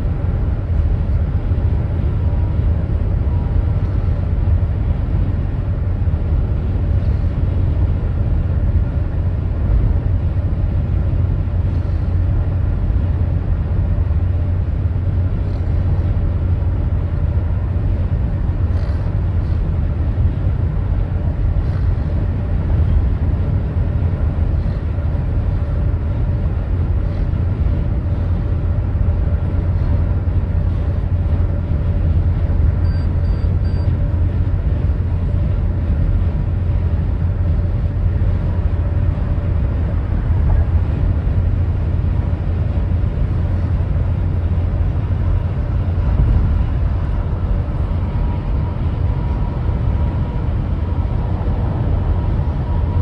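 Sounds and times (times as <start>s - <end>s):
vehicle rumbling: 0.0s - 53.0s
short high beeps: 32.8s - 33.9s.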